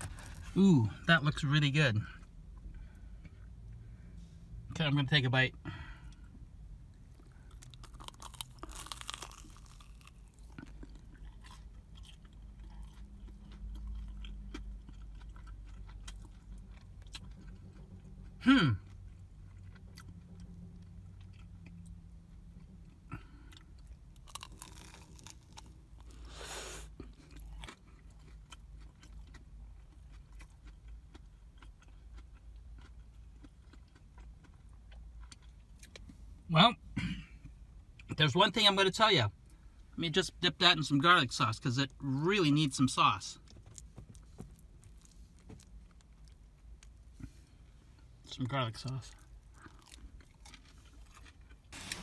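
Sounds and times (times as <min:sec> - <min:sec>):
person chewing crunchy food: 0:00.0 - 0:00.6, 0:06.9 - 0:36.2, 0:43.4 - 0:52.0.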